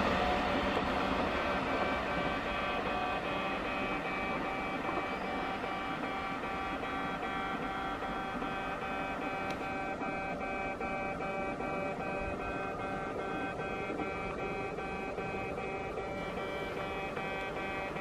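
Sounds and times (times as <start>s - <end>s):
low rail rumble: 0.0s - 6.9s.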